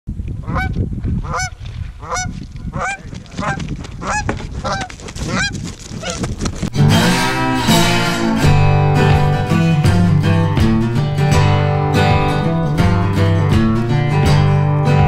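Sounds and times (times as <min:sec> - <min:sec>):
goose honking: 0:01.3 - 0:06.2.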